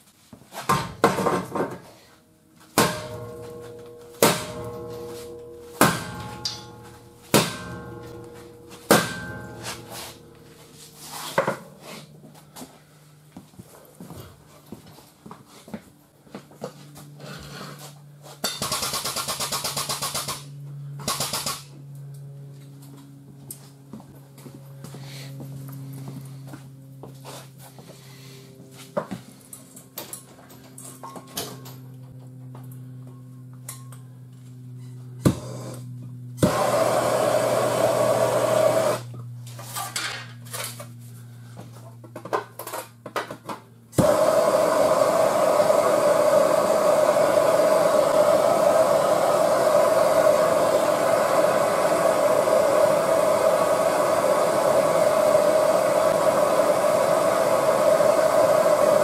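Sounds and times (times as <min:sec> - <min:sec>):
low hum: 0:02.2 - 0:15.2, 0:29.4 - 0:43.0, 0:43.6 - 0:59.0
torch flame roaring: 0:35.2 - 0:39.1, 0:44.0 - 0:59.0.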